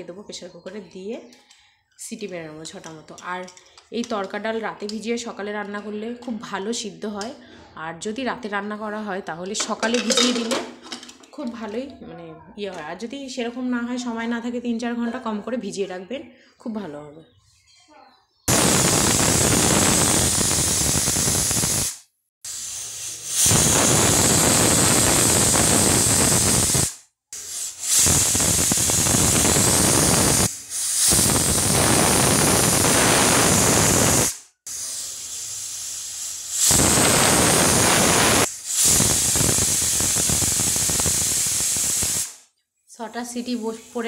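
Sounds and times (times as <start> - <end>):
pressure cooker whistling: 18.5 - 42.4.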